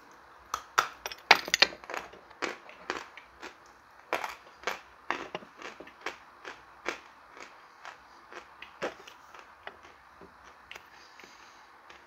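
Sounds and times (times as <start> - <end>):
chalk being chewed: 4.2 - 12.0.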